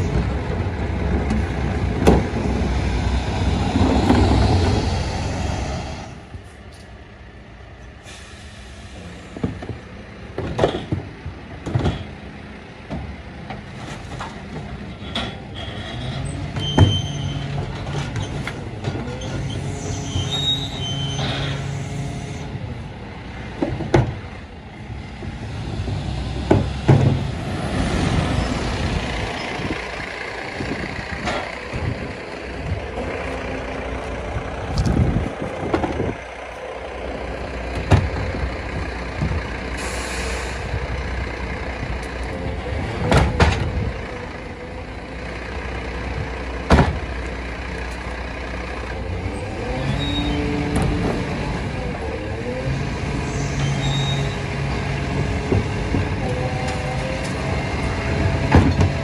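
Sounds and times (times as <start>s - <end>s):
garbage truck engine and hydraulics: 0.0s - 59.0s
short hydraulic hisses: 8.0s - 9.0s, 39.8s - 40.6s
bins clunking against hopper: 9.3s - 20.4s, 25.2s - 28.4s, 37.7s - 39.6s, 42.0s - 44.2s, 50.4s - 51.7s, 54.4s - 59.0s.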